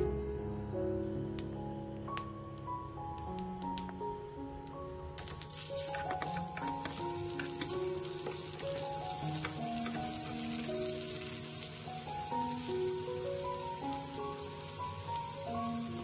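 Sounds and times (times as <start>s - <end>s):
gentle melody of held notes: 0.0s - 16.0s
eggplant sizzling in hot oil: 5.2s - 16.0s
utensils clicking against pan: 5.3s - 11.1s.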